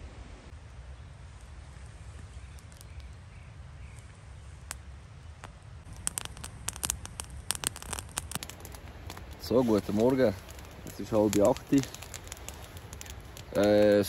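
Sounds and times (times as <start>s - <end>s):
campfire crackling and popping: 4.1s - 14.0s.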